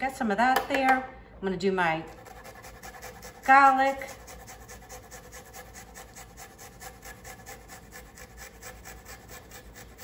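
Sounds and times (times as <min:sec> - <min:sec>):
garlic rasping on grater: 0:02.1 - 0:10.0.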